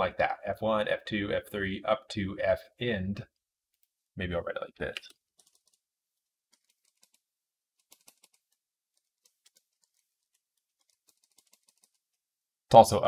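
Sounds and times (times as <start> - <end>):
faint keyboard typing: 4.8 - 12.2.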